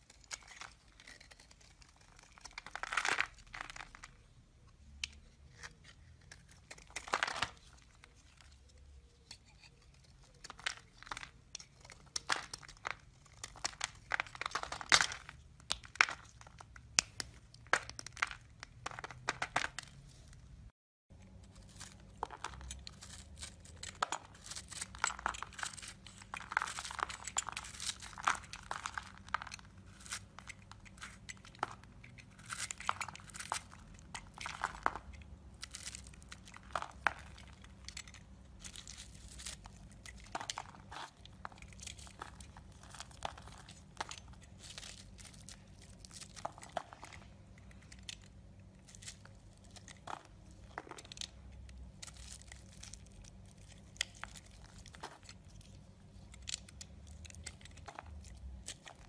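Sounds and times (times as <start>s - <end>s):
knife scraping soap: 0.0s - 4.1s, 5.0s - 15.2s, 21.6s - 48.3s.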